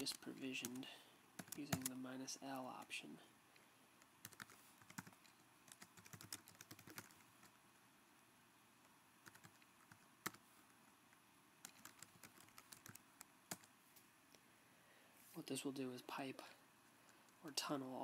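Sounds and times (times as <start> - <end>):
computer keyboard typing: 0.0 - 2.0, 4.2 - 7.6, 9.2 - 10.4, 11.6 - 13.7.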